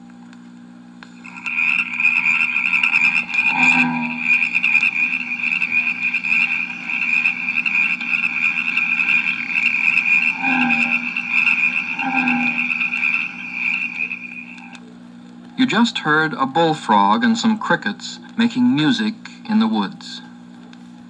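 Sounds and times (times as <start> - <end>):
bullfrog croaking: 1.2 - 14.8
crickets chorus: 1.2 - 14.8.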